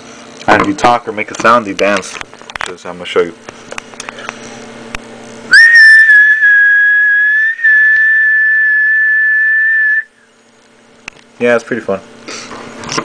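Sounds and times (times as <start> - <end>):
person whistling high note: 5.5 - 10.3.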